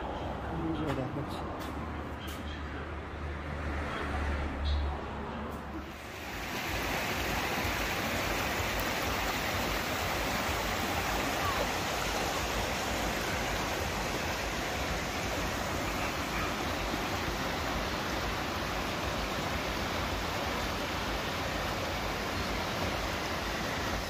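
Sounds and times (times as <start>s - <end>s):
river rushing over rocks: 5.9s - 24.0s.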